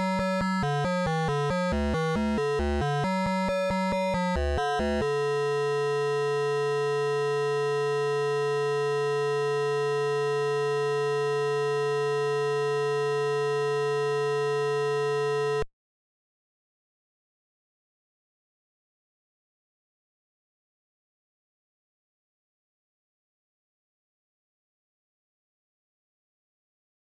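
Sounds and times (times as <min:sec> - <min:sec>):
droning held chiptune chord: 0:00.0 - 0:15.6
buzzy chiptune notes: 0:00.6 - 0:03.1, 0:04.3 - 0:15.6.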